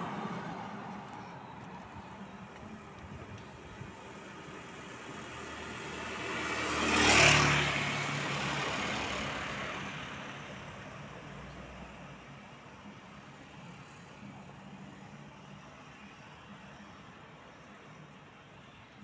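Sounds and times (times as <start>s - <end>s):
car driving past: 5.3s - 11.9s.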